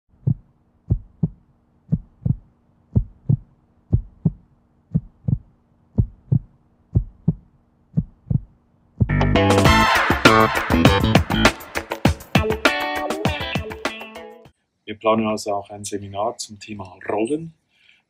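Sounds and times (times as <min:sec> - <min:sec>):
heartbeat thumps: 0:00.1 - 0:09.4.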